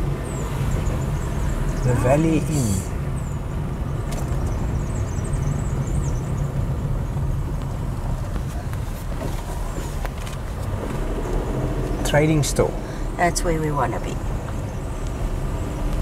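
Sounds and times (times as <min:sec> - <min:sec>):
car engine and tyres rumbling: 0:00.0 - 0:16.0.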